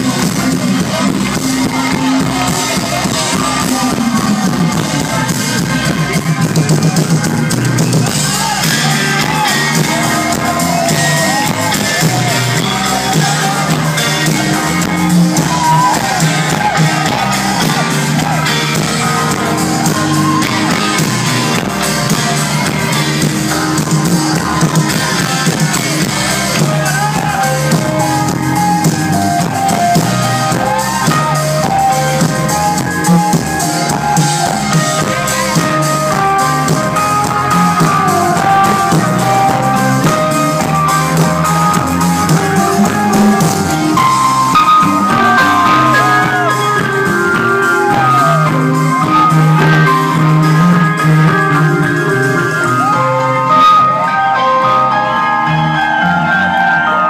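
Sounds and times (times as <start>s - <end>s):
crowd shouting along: 0.0s - 57.0s
live rock band playing: 0.0s - 57.0s.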